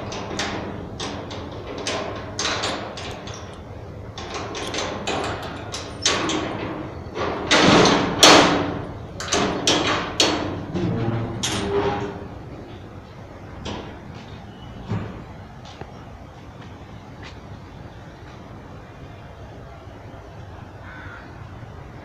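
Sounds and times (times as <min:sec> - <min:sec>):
metal gate bar scraping: 0:00.0 - 0:12.8
padlock and keys rattling: 0:00.2 - 0:06.8.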